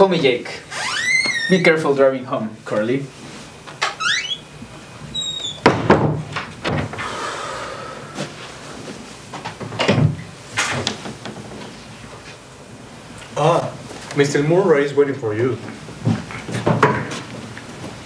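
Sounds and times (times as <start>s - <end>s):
door squeak: 0.7s - 1.8s, 3.8s - 4.5s, 5.1s - 5.8s
door thuds and knocks: 5.6s - 7.0s.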